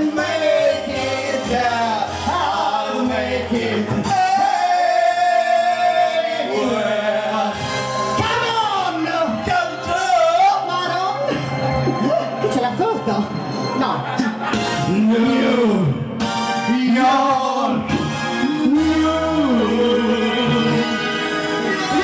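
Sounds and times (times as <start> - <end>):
live band music: 0.0 - 22.0
person singing: 14.8 - 22.0.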